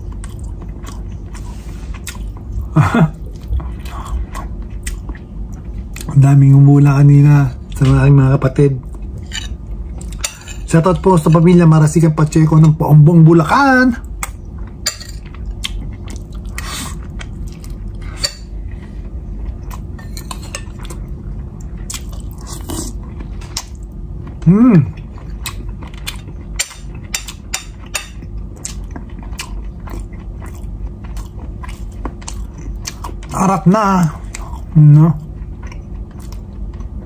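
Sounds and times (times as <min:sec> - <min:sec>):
chewing: 0:00.0 - 0:06.2, 0:14.1 - 0:33.4, 0:34.0 - 0:37.0
low hum: 0:00.0 - 0:37.0
person humming: 0:24.4 - 0:25.0.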